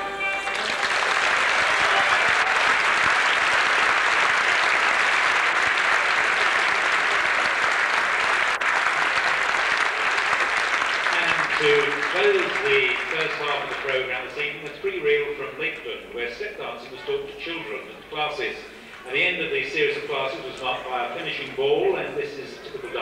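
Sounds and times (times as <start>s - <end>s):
audience applauding: 0.0s - 15.6s.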